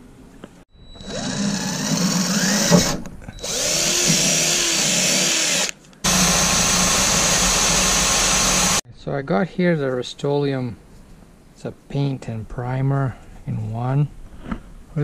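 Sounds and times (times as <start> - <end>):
power drill cutting sheet metal: 1.0 - 8.8.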